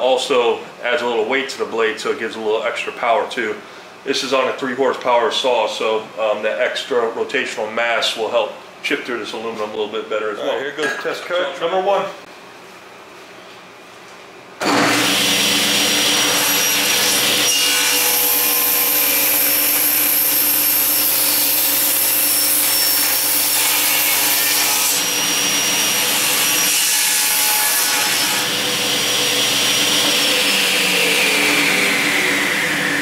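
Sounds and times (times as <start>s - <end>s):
table saw cutting metal: 14.6s - 33.0s.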